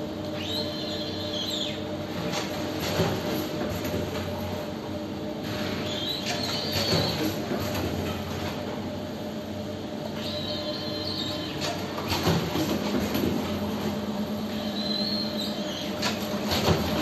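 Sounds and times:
machine humming: 0.0 - 17.0
high-pitched machine squeal: 0.4 - 1.8, 10.2 - 11.6, 14.5 - 15.9.

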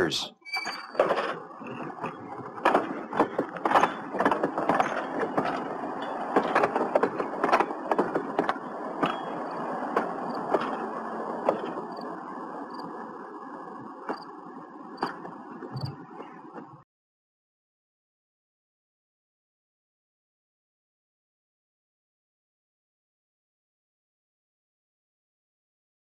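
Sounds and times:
streetcar rumbling: 0.0 - 16.8
wheels clicking on rails: 0.7 - 16.8.

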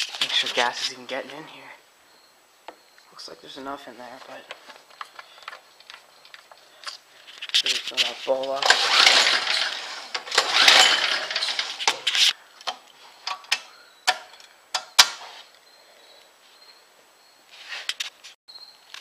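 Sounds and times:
rustling handling noise: 3.9 - 13.4
clicks and knocks on metal parts: 10.1 - 15.2.

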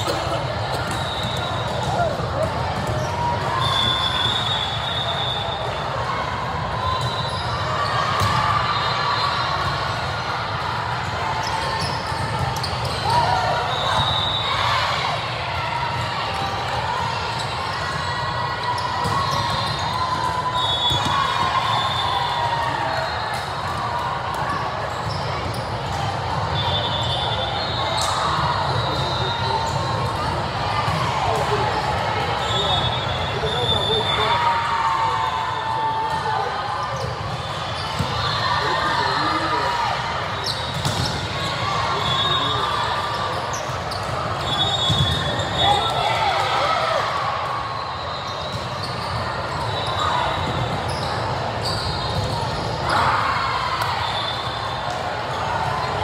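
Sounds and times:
hum and chatter of gym: 0.0 - 56.0
sneakers squeaking on court: 40.4 - 42.4, 43.3 - 46.0, 48.1 - 52.9.

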